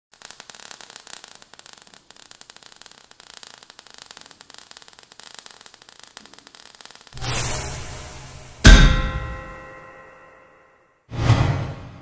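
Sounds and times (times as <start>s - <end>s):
rapid fire crackling: 0.1s - 9.4s
steady hiss: 0.1s - 9.6s.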